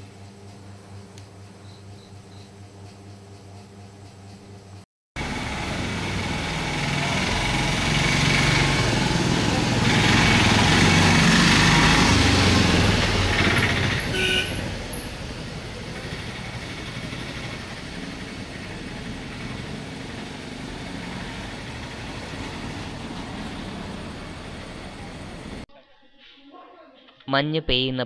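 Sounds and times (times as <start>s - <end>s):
distant traffic noise: 5.2s - 25.6s
vehicle engine passing close: 5.2s - 25.7s
car horn toot: 14.0s - 14.8s.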